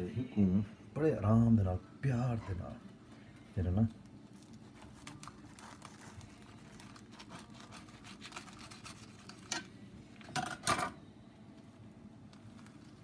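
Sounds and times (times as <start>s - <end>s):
knife sawing through tortilla: 5.5s - 9.3s.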